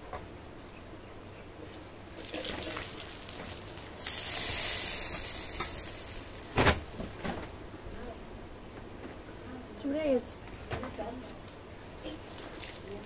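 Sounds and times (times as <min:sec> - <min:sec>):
spices sizzling in hot oil: 0:02.1 - 0:07.0.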